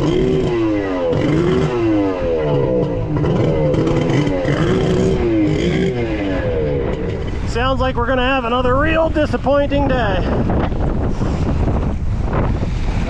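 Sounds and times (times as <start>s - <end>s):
jet ski engine revving: 0.0s - 7.5s.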